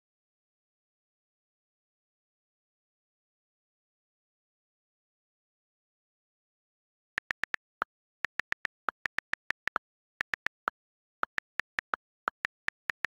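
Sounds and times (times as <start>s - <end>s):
phone keyboard typing clicks: 7.2s - 13.0s.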